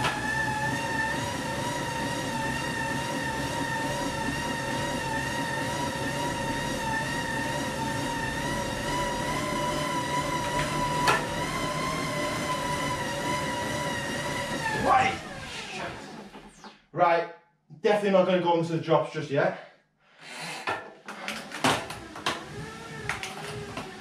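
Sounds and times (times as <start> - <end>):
bike tyres whirring on rollers: 0.0 - 16.6.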